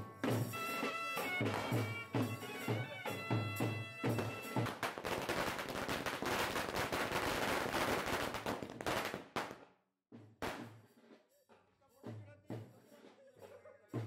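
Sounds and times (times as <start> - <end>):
firecrackers crackling: 0.2 - 9.7, 10.4 - 10.9.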